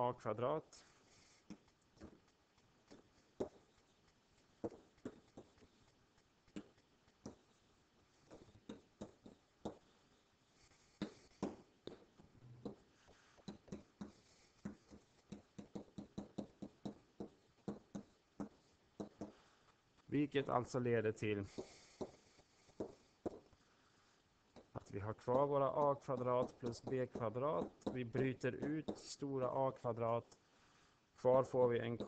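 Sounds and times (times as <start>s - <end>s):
pen tapping on writing tablet: 4.6s - 5.7s, 6.5s - 7.4s, 8.3s - 9.8s, 11.0s - 12.8s, 13.4s - 19.4s, 21.5s - 22.2s, 22.8s - 23.5s, 24.5s - 29.1s.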